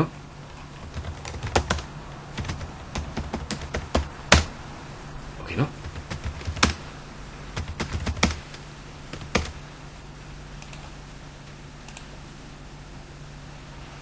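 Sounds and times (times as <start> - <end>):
steady low hum: 0.0 - 14.0
keyboard keystrokes: 0.8 - 4.5, 5.8 - 6.8, 7.6 - 9.6.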